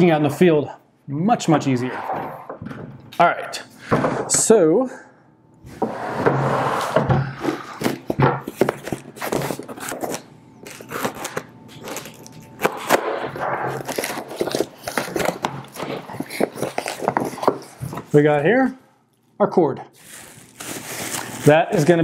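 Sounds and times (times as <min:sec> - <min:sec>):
cardboard rustling and scraping: 0:05.8 - 0:12.1, 0:13.3 - 0:18.2.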